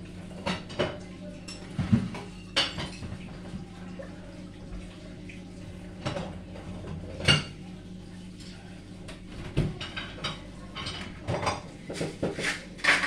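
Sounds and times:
dishes and utensils handled: 9.7s - 13.0s.

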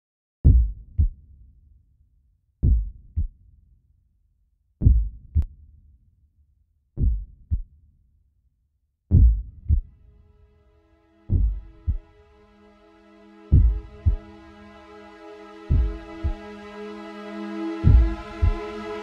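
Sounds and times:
heartbeat thumps: 0.4s - 1.1s, 2.6s - 3.3s, 4.8s - 5.5s, 7.0s - 7.6s, 9.1s - 9.9s, 11.3s - 12.0s, 13.5s - 14.2s, 15.7s - 16.4s, 17.8s - 18.6s.

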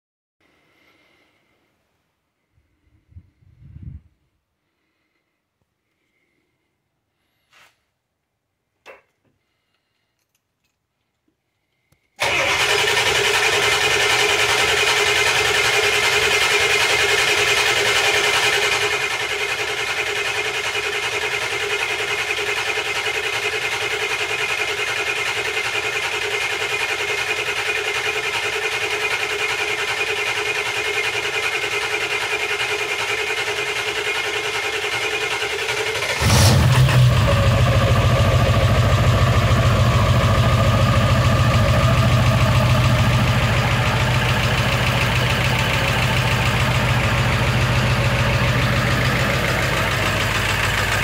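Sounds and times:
diesel engine starting and idling: 12.2s - 51.0s.

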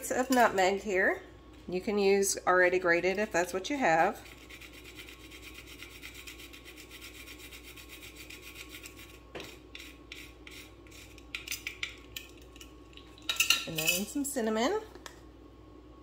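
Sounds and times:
nutmeg rasping on grater: 4.2s - 11.5s.

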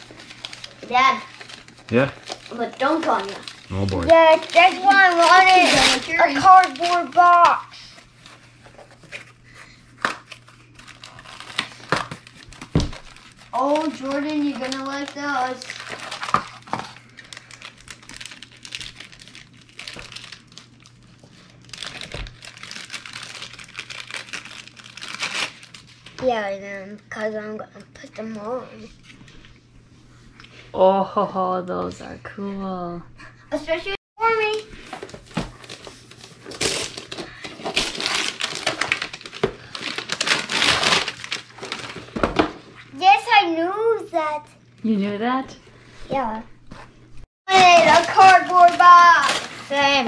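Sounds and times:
gift packaging crinkling and tearing: 0.0s - 27.3s, 34.2s - 42.5s, 47.5s - 50.0s.

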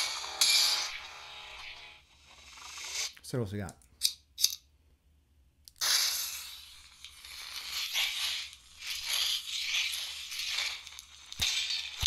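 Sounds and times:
lightsaber hissing hum: 0.0s - 3.2s.

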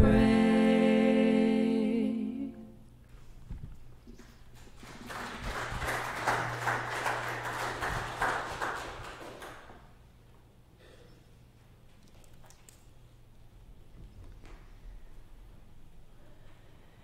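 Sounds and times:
congregation applauding: 4.6s - 10.0s.

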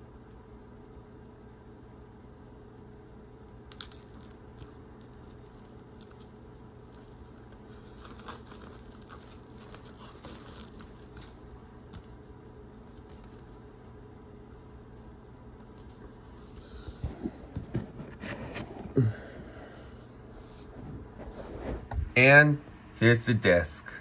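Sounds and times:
steady low hum: 0.0s - 24.0s
plastic wrapping crinkling: 3.5s - 17.3s.

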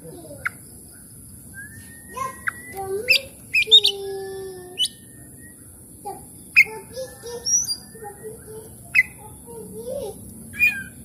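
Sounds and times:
bird singing whistles and chirps: 1.5s - 5.8s, 6.5s - 9.2s, 10.5s - 11.0s.

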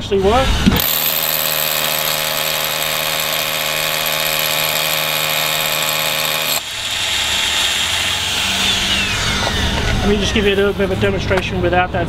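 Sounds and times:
rotary hammer drilling into concrete: 0.7s - 10.0s
dust extractor running: 0.8s - 10.2s.

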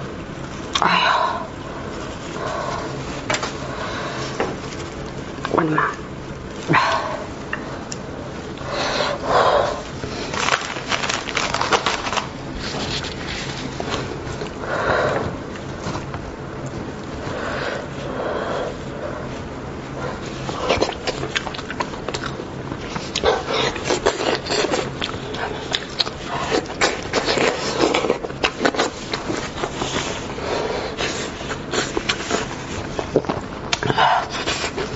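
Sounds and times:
paper tissue crinkling: 8.7s - 14.5s, 23.0s - 33.6s
person chewing and lip-smacking: 20.7s - 22.4s, 23.0s - 29.9s.

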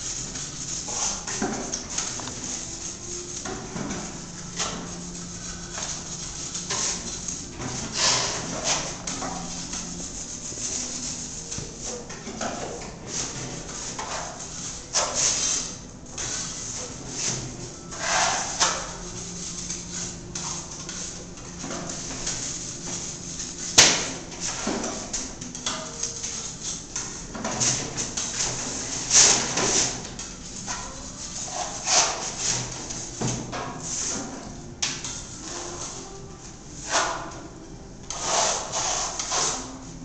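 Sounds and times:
trowel scraping compound: 13.2s - 18.8s, 30.7s - 32.8s, 38.1s - 39.8s.

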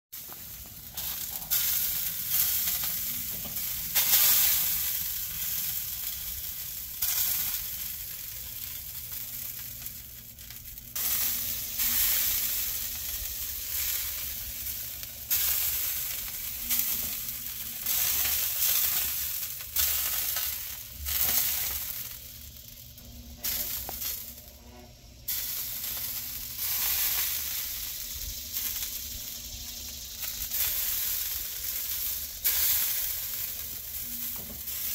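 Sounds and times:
drippings sizzling on hot charcoal: 0.1s - 34.9s.

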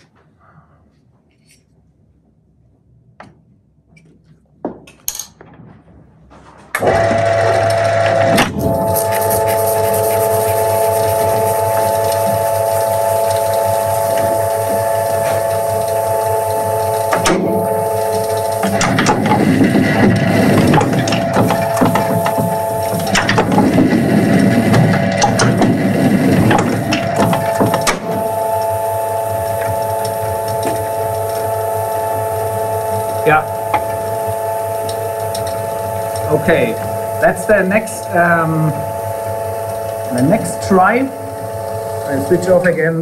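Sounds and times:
press motor humming: 6.8s - 43.0s
press knocking and clattering: 17.1s - 17.7s, 18.6s - 28.3s.

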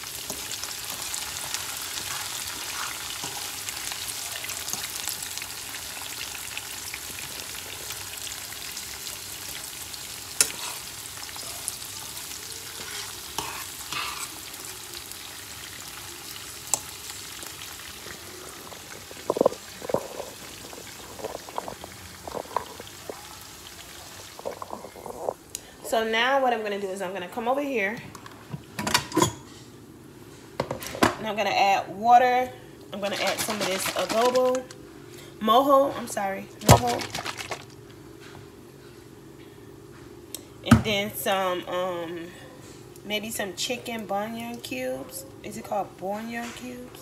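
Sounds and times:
vegetables sizzling in oil: 0.0s - 25.6s, 33.0s - 34.8s.

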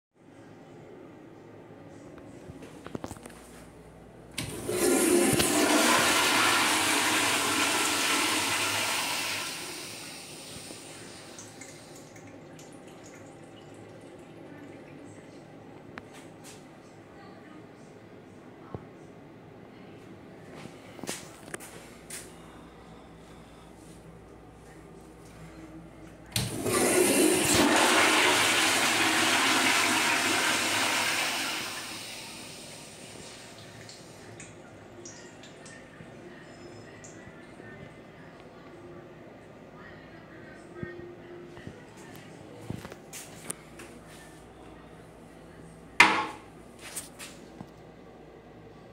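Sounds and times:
toilet flushing: 4.4s - 14.9s, 26.3s - 34.4s.

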